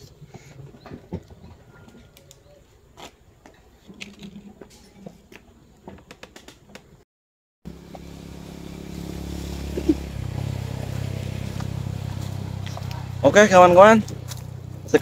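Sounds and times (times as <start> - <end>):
motor vehicle engine hum: 7.7 - 15.0.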